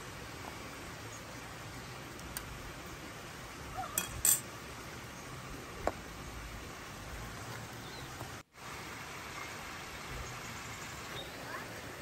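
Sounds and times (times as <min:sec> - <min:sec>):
metal bowls clinking: 0:04.0 - 0:04.5.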